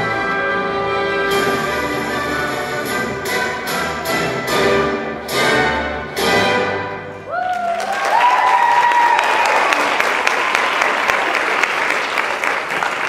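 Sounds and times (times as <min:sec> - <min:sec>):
orchestra playing loud chords: 0:00.0 - 0:07.3
audience applause: 0:07.3 - 0:13.0.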